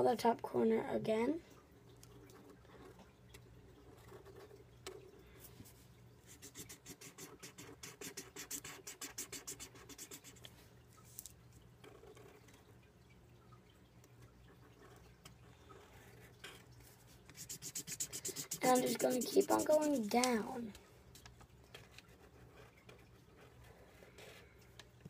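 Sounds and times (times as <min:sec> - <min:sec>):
marker scratching on paper: 0:06.3 - 0:10.5, 0:17.3 - 0:20.4.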